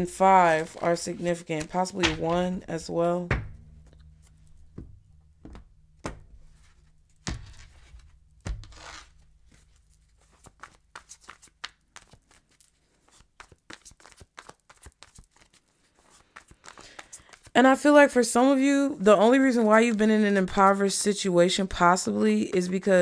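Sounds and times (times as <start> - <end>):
cards tapping: 0.6 - 2.6, 3.3 - 17.5
cards shuffling clicks: 7.3 - 17.6.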